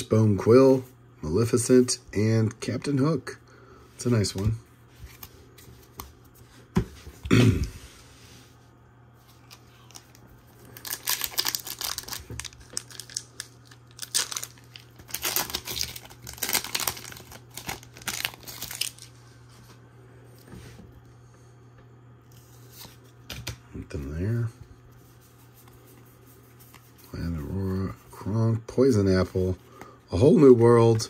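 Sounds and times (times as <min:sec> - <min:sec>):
wrapper tearing and crinkling: 0:09.4 - 0:19.2.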